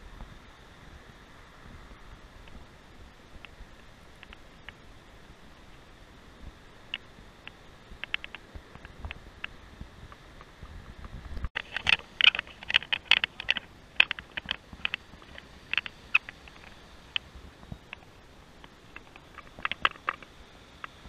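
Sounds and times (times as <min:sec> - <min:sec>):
sharp clicks and taps: 0:06.9 - 0:09.6, 0:11.5 - 0:17.2, 0:17.8 - 0:21.0.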